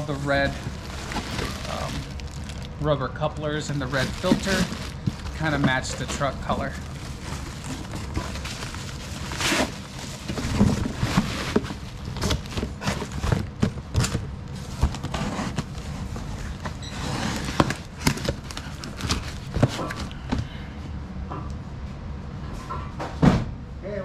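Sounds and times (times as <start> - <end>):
bubble wrap crackling: 0.0 - 20.1
cardboard box flaps folding: 3.9 - 20.1.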